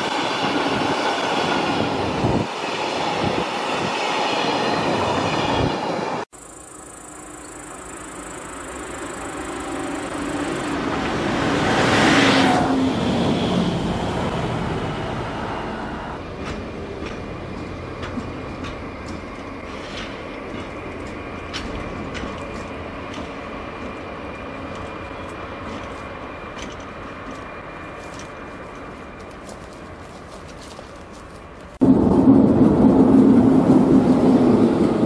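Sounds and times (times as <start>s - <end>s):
diesel locomotives passing: 0.0s - 35.0s
thin steady squeal: 6.4s - 10.8s
train wheels clicking over rail joints: 16.2s - 30.0s.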